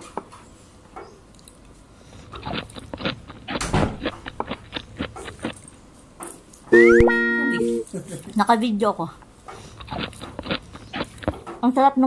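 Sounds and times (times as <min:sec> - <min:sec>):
food packaging crinkling: 0:01.4 - 0:05.8, 0:09.6 - 0:11.4.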